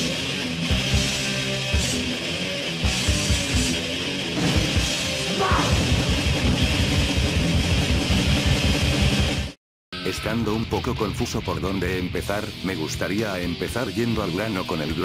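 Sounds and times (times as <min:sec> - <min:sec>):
distorted electric guitar: 0:00.0 - 0:15.0
fast dense drumming: 0:04.4 - 0:08.6.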